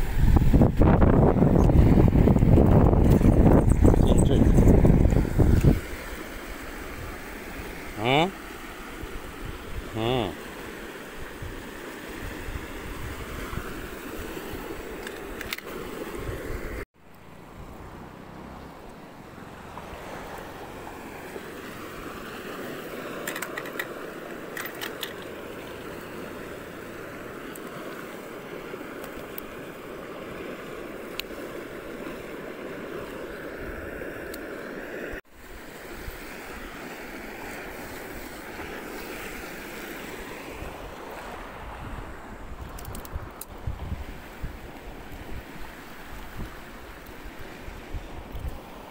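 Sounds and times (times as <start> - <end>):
wind on microphone: 0.0 - 7.7, 11.1 - 16.8, 37.4 - 48.9
river rushing: 0.0 - 16.8, 17.5 - 42.6.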